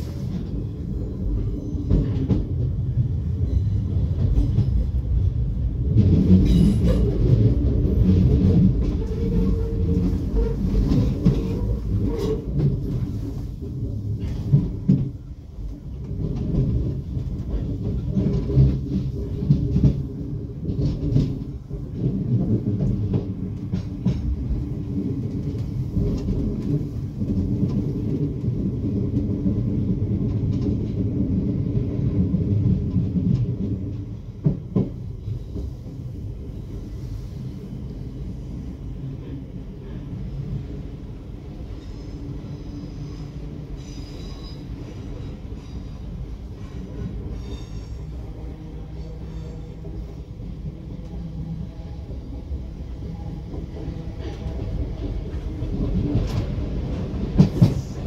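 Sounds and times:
train rumble: 0.0s - 58.0s
train wheel clicks and knocks: 1.4s - 2.8s, 5.8s - 35.9s, 53.4s - 58.0s.

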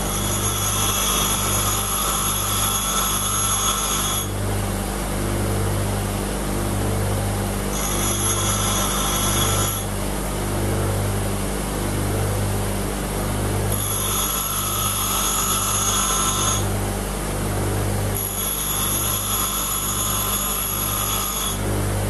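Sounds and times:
bench grinder motor hum: 0.0s - 4.5s, 7.7s - 10.0s, 13.7s - 16.9s, 18.1s - 22.0s
high-pitched grinding whine: 0.0s - 22.0s.

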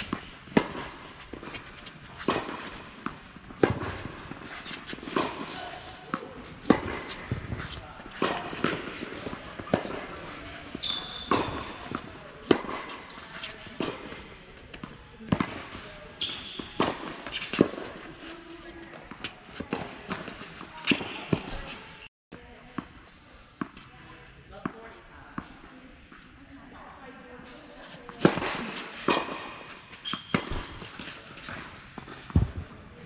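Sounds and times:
tennis ball struck and bouncing: 0.0s - 15.9s, 16.8s - 18.1s
shoe squeaks on court: 10.2s - 11.9s, 16.2s - 17.6s, 29.7s - 31.6s.

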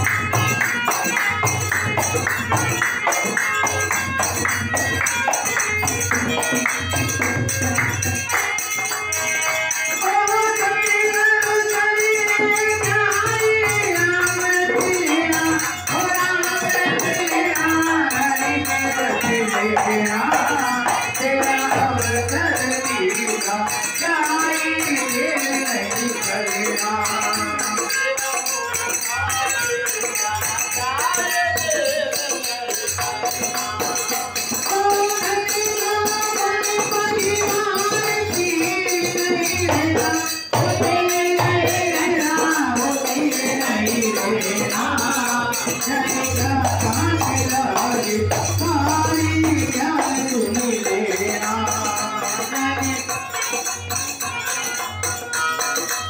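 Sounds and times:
dholak drum: 0.0s - 56.0s
jingling hand percussion: 0.0s - 56.0s
singer at a microphone: 0.0s - 56.0s
men singing together: 9.1s - 53.6s.

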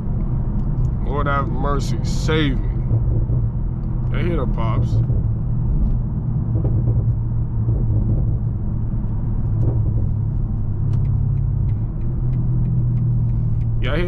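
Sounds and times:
car engine and road drone: 0.0s - 14.0s
faint exhaust pops: 5.0s - 14.0s.

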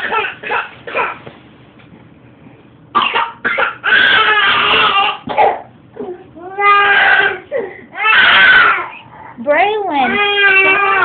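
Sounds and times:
toddler crying: 3.6s - 5.3s, 6.0s - 9.0s, 10.0s - 11.0s.

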